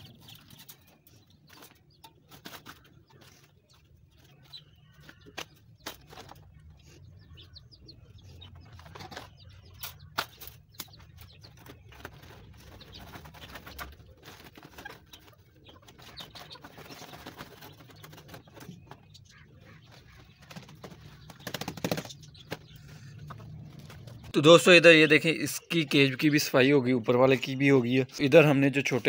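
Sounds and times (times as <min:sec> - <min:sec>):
wire cages clicking and knocking: 0:00.0 - 0:07.0, 0:07.6 - 0:24.8
caged birds chirping: 0:00.0 - 0:29.0
wings fluttering: 0:08.5 - 0:24.3.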